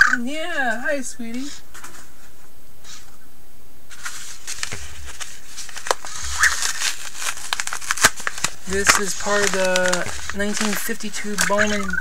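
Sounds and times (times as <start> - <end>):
padded envelope crinkling: 3.9 - 12.0.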